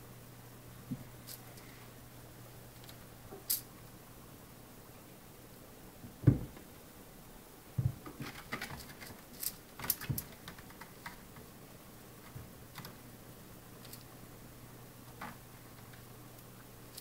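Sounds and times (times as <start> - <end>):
dull thump: 6.2 - 6.6.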